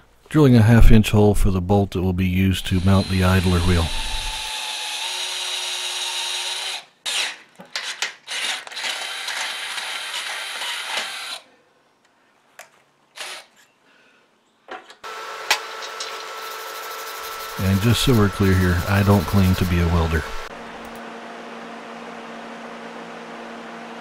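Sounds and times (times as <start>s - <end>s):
electric drill boring through steel: 2.8s - 7.4s, 8.3s - 11.4s, 15.1s - 20.5s.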